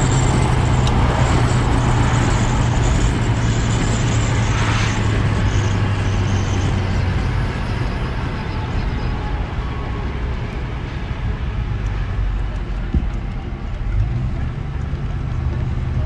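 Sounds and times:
engine drone inside cab: 0.0 - 16.0
road and wind noise: 0.0 - 16.0
rush of air: 0.5 - 6.0.

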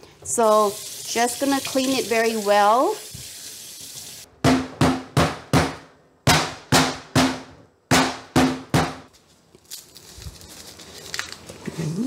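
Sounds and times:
pestle pounding on wooden board: 4.4 - 9.1.

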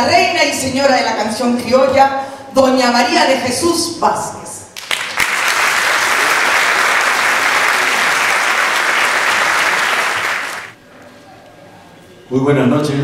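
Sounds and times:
audience applauding: 4.8 - 10.8.

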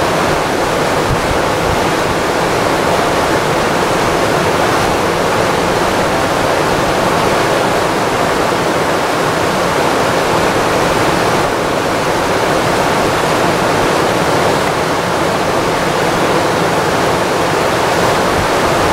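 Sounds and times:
river rapids rushing over rocks: 0.0 - 18.9.

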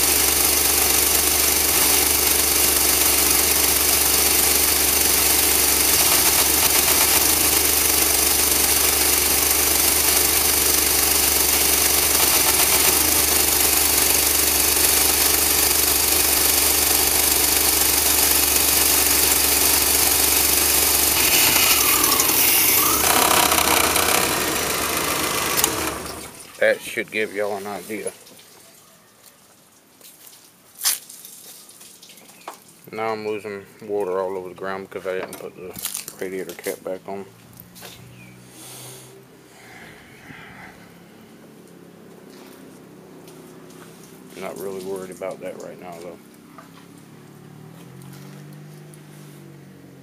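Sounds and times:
van engine running: 0.0 - 26.6.

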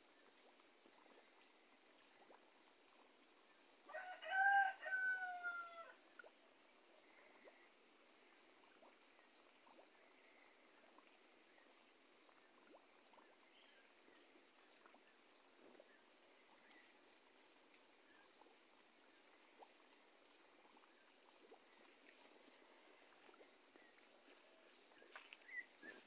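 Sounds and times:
faint steady hiss: 0.0 - 26.0
rooster crowing: 3.9 - 6.0.

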